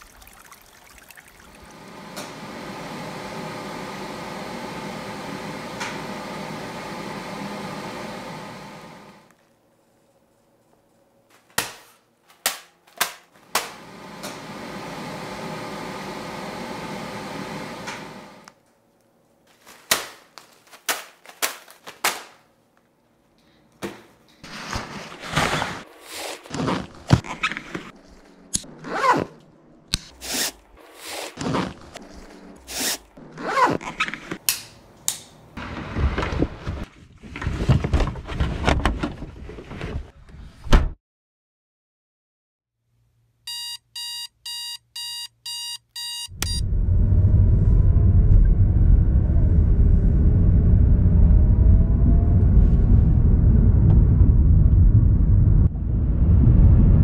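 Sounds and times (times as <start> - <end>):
rustling and clatter of packing: 24.4 - 28.3, 35.6 - 40.1.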